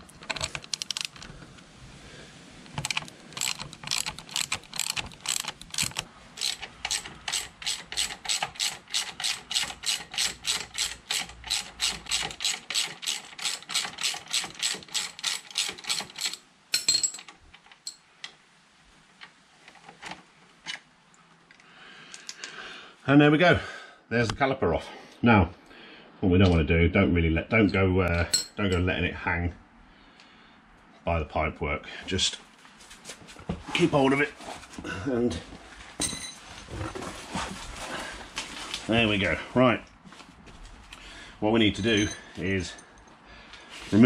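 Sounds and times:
socket ratchet clicking: 0.3 - 1.2, 2.8 - 16.4.

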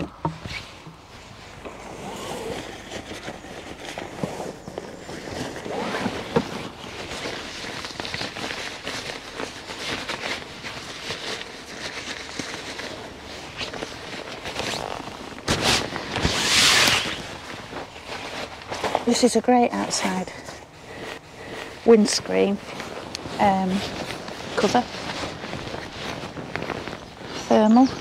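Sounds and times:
fabric rasping: 1.6 - 18.5.

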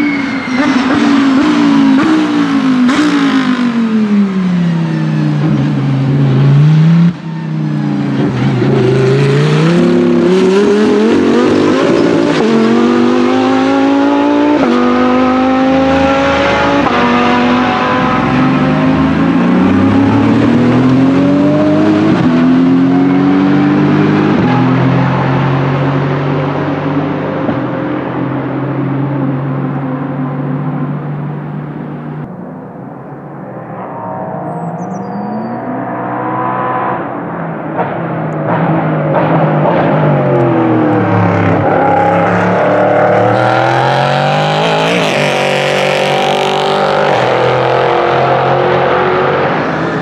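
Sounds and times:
race car accelerating with upshifts: 0.6 - 50.0
race car engine passing: 30.4 - 50.0.

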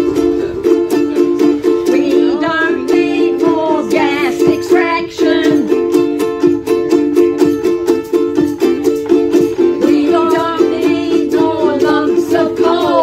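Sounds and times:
ukuleles strummed: 0.0 - 13.0
woman singing: 1.3 - 6.0, 9.8 - 13.0.

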